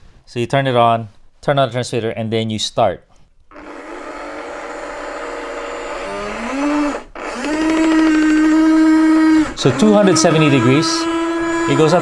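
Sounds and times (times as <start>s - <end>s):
toy engine start-up sound effect: 9.6s - 12.0s.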